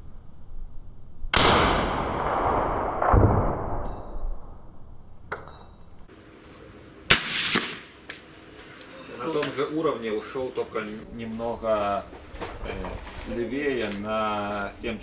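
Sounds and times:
suppressed rifle shots: 7.1 - 8.2.

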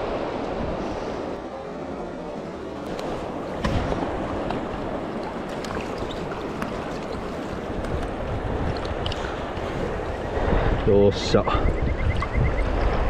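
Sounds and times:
wind buffeting microphone: 2.5 - 13.0
sudden thump: 3.6 - 4.0.

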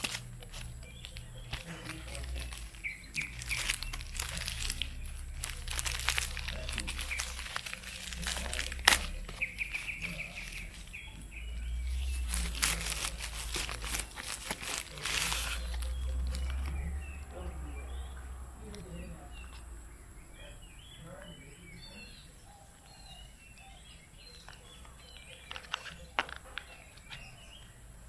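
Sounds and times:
plastic mailer crinkling: 0.0 - 17.4, 24.0 - 27.7
bird trilling: 0.0 - 27.9.

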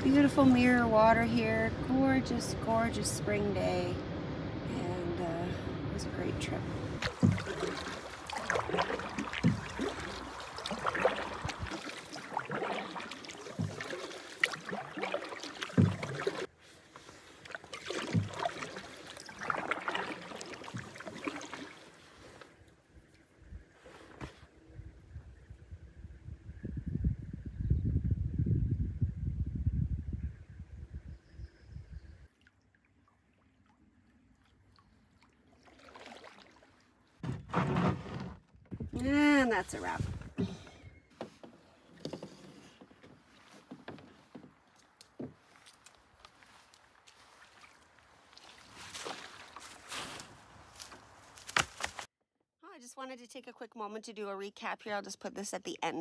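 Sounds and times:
soft low paddle thud: 7.0 - 16.5
water drips: 7.0 - 16.5, 17.4 - 21.9
paddle dipping and dripping: 7.0 - 23.2, 32.2 - 51.9.

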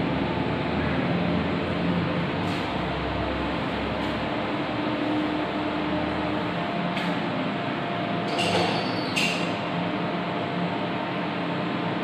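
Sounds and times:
mechanical hum and hiss: 0.0 - 12.0.

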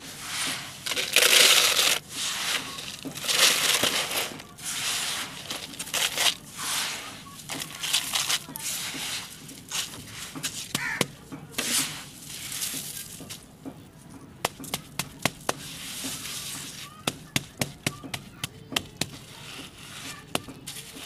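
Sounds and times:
gravel swept into plastic bucket: 0.0 - 13.5, 15.5 - 16.9
palm patting gravel: 0.0 - 21.0.

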